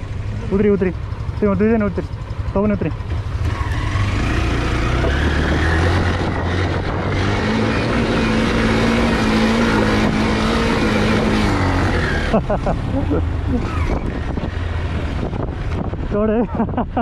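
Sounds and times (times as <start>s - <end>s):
motorcycle engine running hard: 0.0s - 17.0s.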